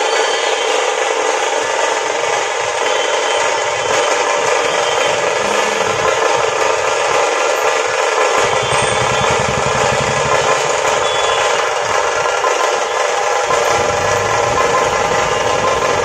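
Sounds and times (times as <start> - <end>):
drum troupe playing: 4.0 - 12.8.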